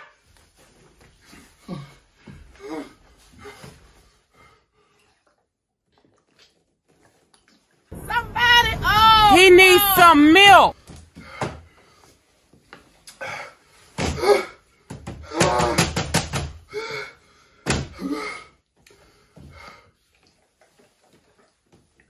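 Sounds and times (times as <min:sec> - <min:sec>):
knocks and thumps: 0:14.9 - 0:16.6
man groaning and gasping: 0:15.2 - 0:15.9, 0:17.9 - 0:18.6.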